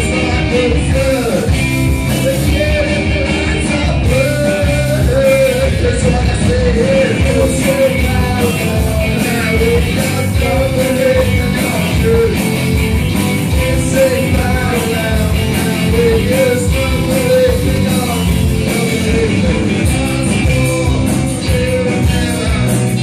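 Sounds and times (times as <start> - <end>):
man singing into a microphone: 0.0 - 12.6, 13.5 - 23.0
drums: 0.0 - 23.0
electric guitars: 0.0 - 23.0.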